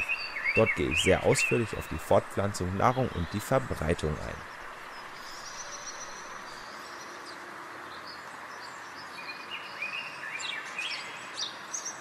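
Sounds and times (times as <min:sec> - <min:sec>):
blackbird singing: 0:00.0 - 0:07.4
steady hiss: 0:00.0 - 0:07.6.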